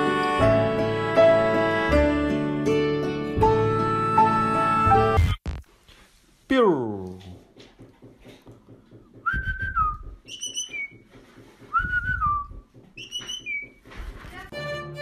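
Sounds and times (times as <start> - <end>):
person whistling: 9.2 - 11.0, 11.7 - 13.8.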